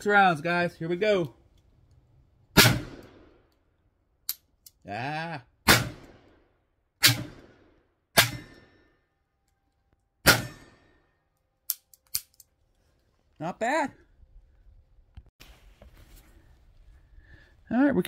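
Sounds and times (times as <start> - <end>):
revolver gunshots with echo: 2.6 - 3.4, 5.6 - 6.4, 7.0 - 8.8, 10.2 - 11.0.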